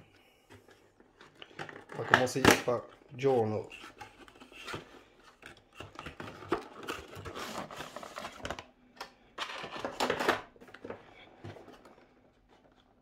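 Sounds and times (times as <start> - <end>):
packaging rustling: 0.7 - 8.7.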